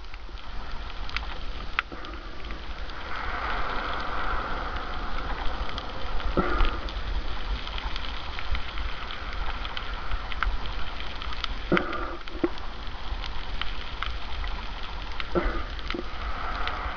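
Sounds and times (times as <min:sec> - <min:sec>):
low underwater rumble: 0:00.0 - 0:16.9
scattered underwater clicks: 0:00.0 - 0:16.9
underwater crackling hiss: 0:00.0 - 0:16.9.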